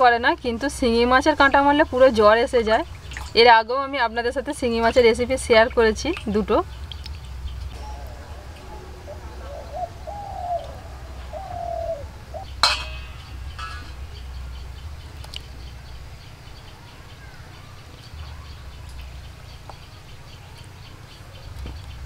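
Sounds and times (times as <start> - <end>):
steady low rumble: 3.9 - 17.2
faint high chirping: 7.7 - 22.0
dove cooing: 7.8 - 12.5
sharp metallic knock: 12.6 - 14.1.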